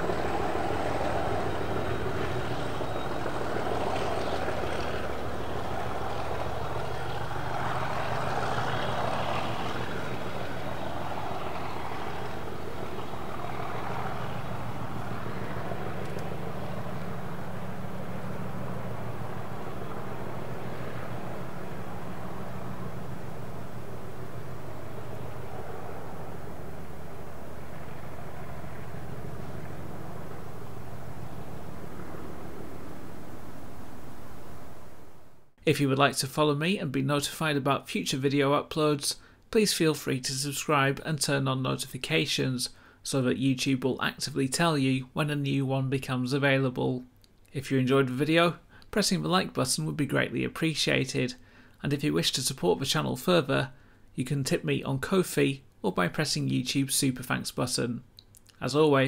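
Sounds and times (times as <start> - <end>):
diesel locomotive engine running: 0.0 - 35.2.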